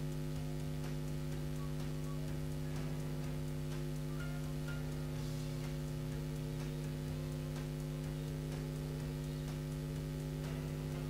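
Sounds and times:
electrical mains hum: 0:00.0 - 0:11.0
faint irregular ticking: 0:00.0 - 0:11.0.

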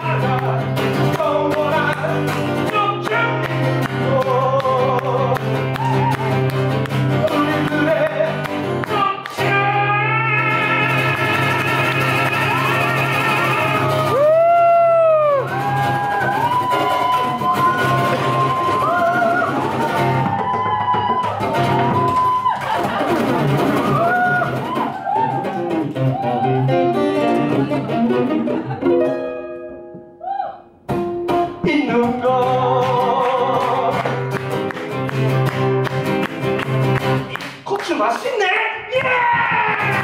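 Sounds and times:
man singing: 0:00.0 - 0:05.8, 0:07.1 - 0:14.4, 0:31.5 - 0:34.4, 0:37.8 - 0:40.0
acoustic guitar drone: 0:00.0 - 0:20.3, 0:22.8 - 0:24.9, 0:25.5 - 0:30.0.

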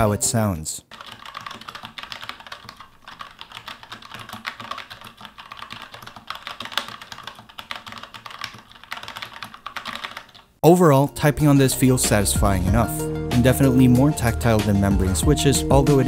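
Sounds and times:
mechanical keyboard typing: 0:00.8 - 0:10.5.

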